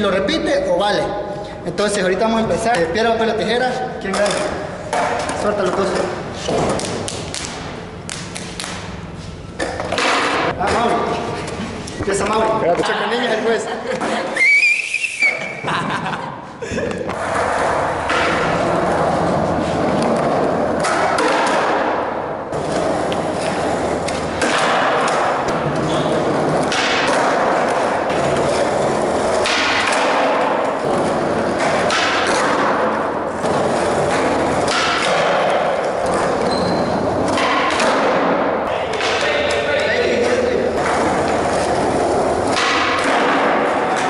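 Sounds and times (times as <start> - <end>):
skateboard thuds and slaps: 9.6 - 10.5, 20.0 - 22.0, 23.4 - 25.8, 26.4 - 28.4, 29.3 - 36.4, 37.2 - 39.3, 42.5 - 44.0
skateboard wheels rolling on concrete: 17.1 - 44.0.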